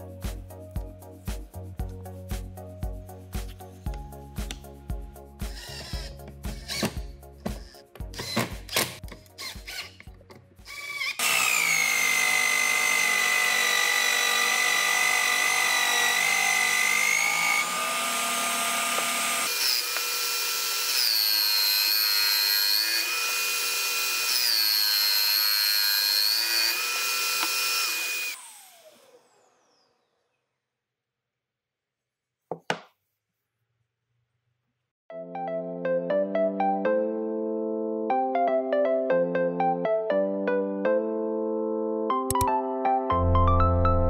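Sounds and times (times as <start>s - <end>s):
electric drill whining: 5.5s - 30.4s.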